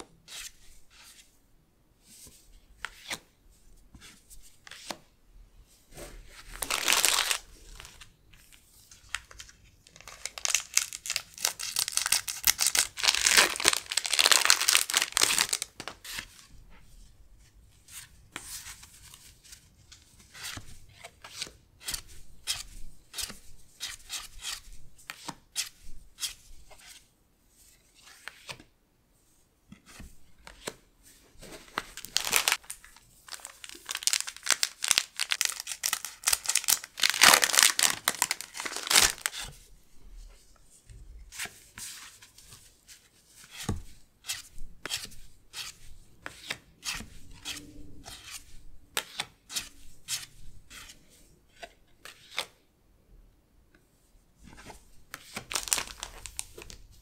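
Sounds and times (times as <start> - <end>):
foil wrapper crinkling and tearing: 6.6 - 7.9, 9.9 - 15.7, 32.0 - 39.3, 55.4 - 56.5.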